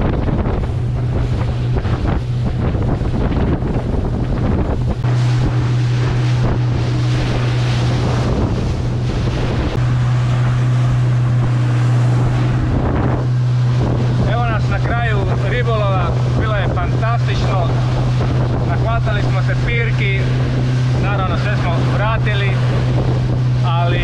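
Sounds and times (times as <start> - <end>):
motorboat engine hum: 0.0 - 24.0
water rushing along hull: 0.0 - 24.0
wind buffeting microphone: 0.0 - 24.0.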